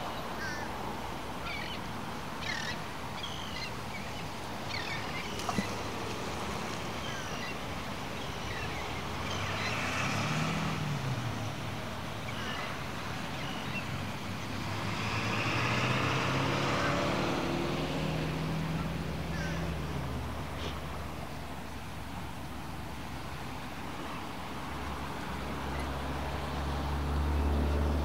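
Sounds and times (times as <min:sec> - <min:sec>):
road traffic passing: 0:00.0 - 0:28.0
vehicle engine: 0:08.5 - 0:28.0.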